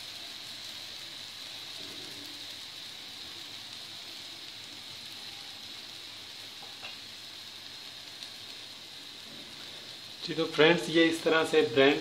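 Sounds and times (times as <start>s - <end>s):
oil sizzling while frying: 0.0s - 12.0s.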